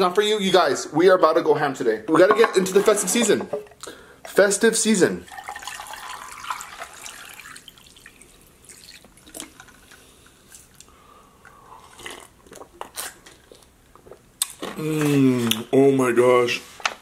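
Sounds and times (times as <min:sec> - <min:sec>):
water pouring into mug: 0:05.2 - 0:09.8.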